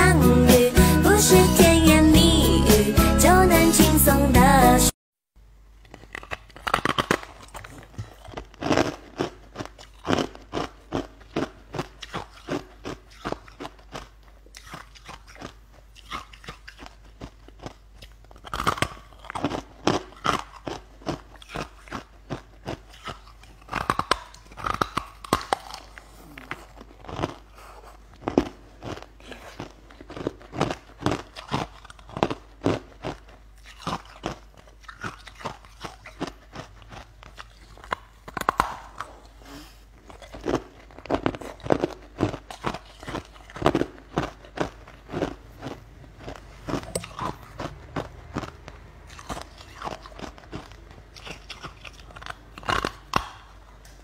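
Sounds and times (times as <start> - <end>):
person crunching ice: 5.9 - 17.7, 40.1 - 54.0.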